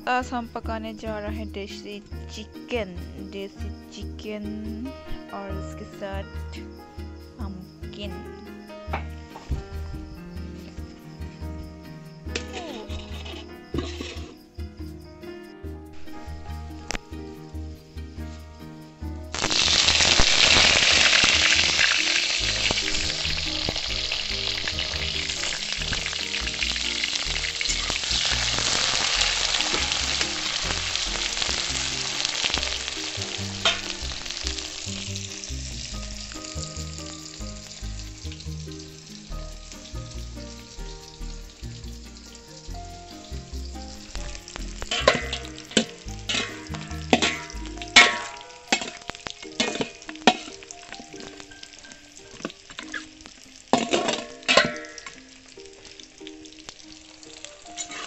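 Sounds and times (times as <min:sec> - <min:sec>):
background music: 0:00.0 - 0:58.0
onions sizzling in hot oil: 0:06.7 - 0:14.9, 0:15.9 - 0:58.0.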